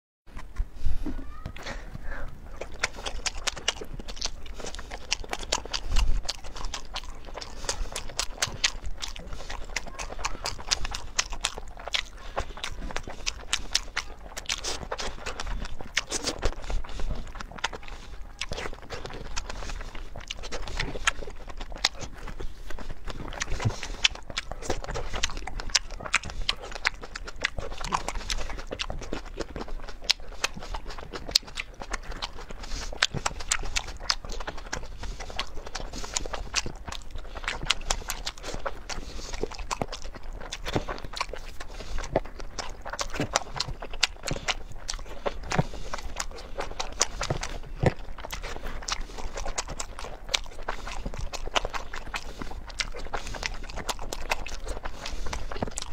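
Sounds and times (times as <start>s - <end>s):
person biting and chewing: 0.3s - 0.8s, 1.6s - 55.9s
wet mouth clicks and smacks: 2.6s - 55.9s.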